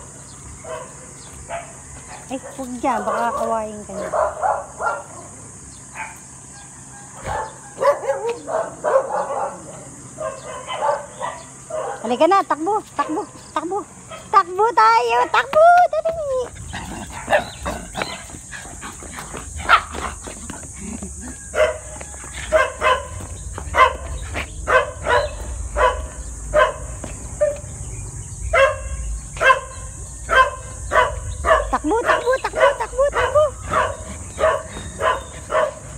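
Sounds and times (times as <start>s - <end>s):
dog barking: 0.6s - 5.4s, 6.0s - 6.2s, 7.2s - 12.2s, 17.1s - 18.3s, 19.6s - 20.0s, 21.5s - 27.6s, 28.5s - 35.9s.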